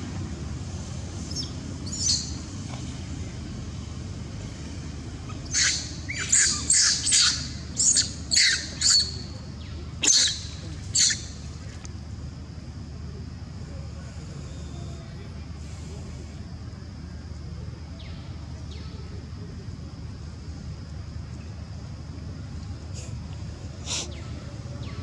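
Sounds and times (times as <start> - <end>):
shrill monkey squeals: 5.3 - 9.3, 10.0 - 11.3
monkey screaming: 5.5 - 9.2, 10.0 - 11.3.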